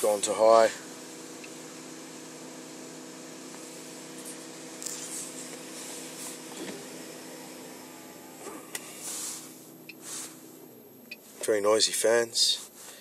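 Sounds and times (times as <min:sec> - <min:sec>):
cooling fans rushing air: 0:00.0 - 0:13.0.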